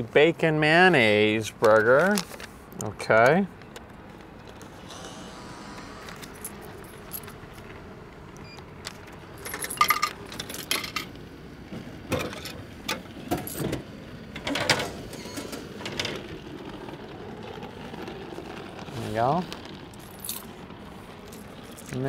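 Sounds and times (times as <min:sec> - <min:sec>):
coins clattering into return: 0:09.4 - 0:11.1.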